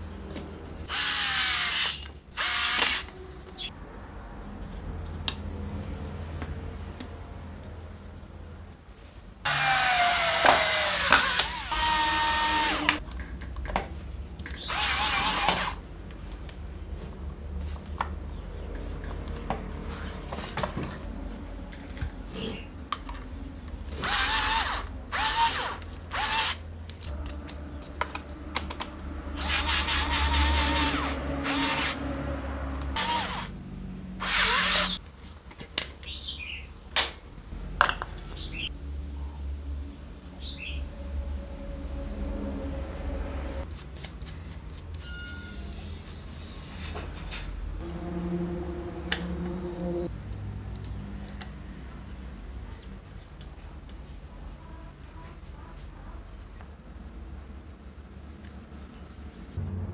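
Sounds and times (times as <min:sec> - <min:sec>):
electric screwdriver whine: 0:00.9 - 0:03.1, 0:09.5 - 0:13.0, 0:14.7 - 0:15.8, 0:24.0 - 0:26.6, 0:29.4 - 0:32.0, 0:33.0 - 0:33.5, 0:34.2 - 0:35.0.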